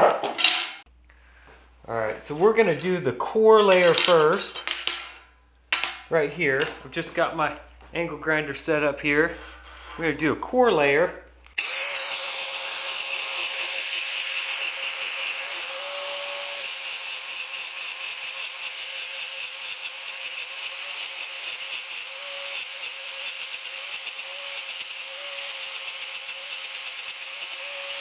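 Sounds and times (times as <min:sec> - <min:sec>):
angle grinder grinding steel: 0:11.6 - 0:28.0.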